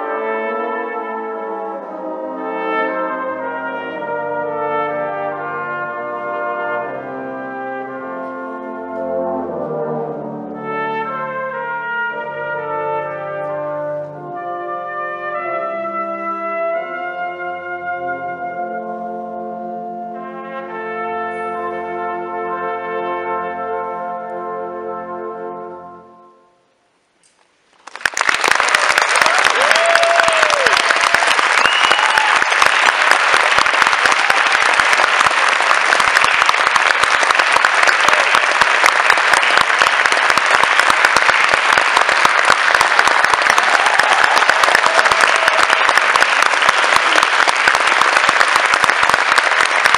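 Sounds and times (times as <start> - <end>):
audience applauding: 27.8 - 49.9
short calls from audience: 28.0 - 49.9.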